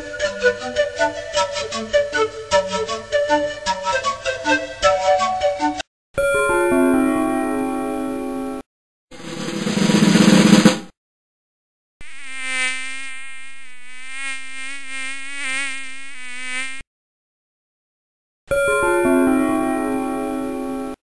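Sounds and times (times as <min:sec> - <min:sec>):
drum roll: 0:09.2 - 0:10.9
flying insect buzzing: 0:12.0 - 0:16.9.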